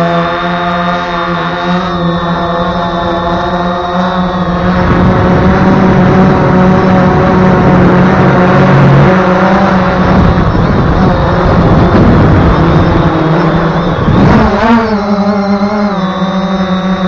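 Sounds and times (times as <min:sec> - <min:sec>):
quadcopter motors and propellers: 0:00.0 - 0:17.0
wind rushing over microphone: 0:01.3 - 0:16.2.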